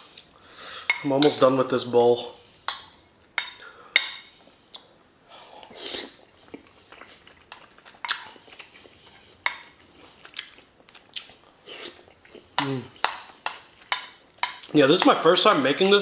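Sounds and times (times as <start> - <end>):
mouth sounds of eating: 4.6 - 13.0.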